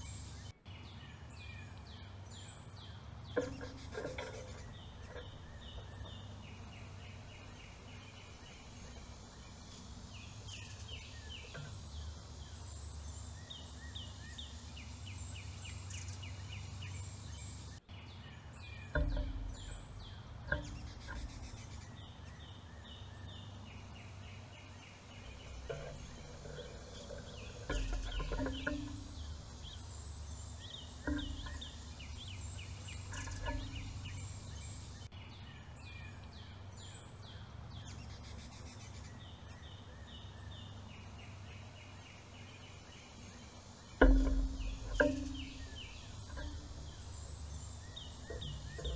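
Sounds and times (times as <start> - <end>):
low outdoor rumble: 0.0 - 48.9
songbirds chirping: 0.0 - 48.9
dull knocks: 18.9 - 21.5, 25.6 - 29.8, 30.7 - 32.4, 44.0 - 48.9.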